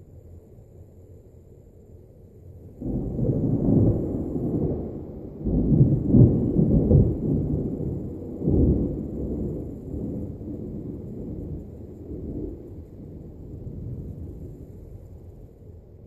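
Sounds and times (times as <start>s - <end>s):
thunder rumbling: 2.8s - 15.2s.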